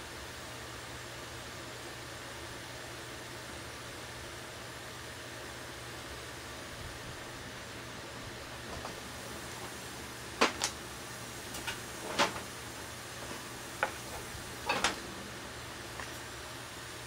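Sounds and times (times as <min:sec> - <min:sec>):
steady low hiss: 0:05.2 - 0:17.0.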